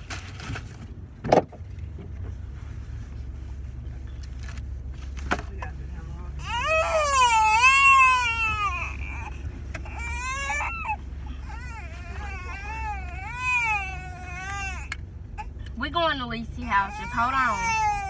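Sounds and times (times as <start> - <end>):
car hum: 0.0 - 18.0
infant crying: 6.4 - 15.6, 16.7 - 18.0.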